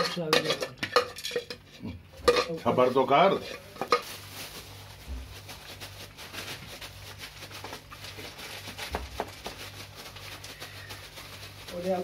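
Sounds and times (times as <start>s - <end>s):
plastic bag crinkling: 2.7s - 12.0s.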